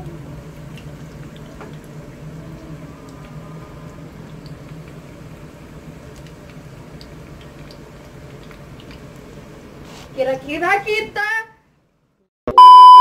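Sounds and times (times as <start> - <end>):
steady low hum: 0.0 - 9.8
oil sizzling with pops: 0.0 - 11.0.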